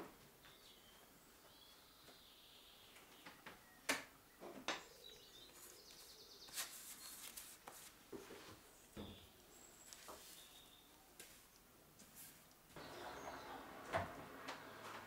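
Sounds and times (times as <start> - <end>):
rag rustling: 5.6 - 8.6.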